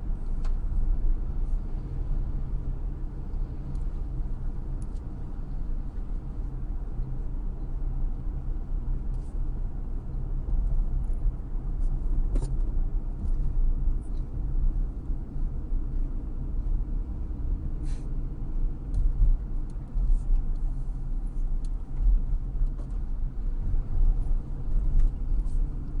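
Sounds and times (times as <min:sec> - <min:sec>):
car engine and tyres rumbling: 0:00.0 - 0:26.0.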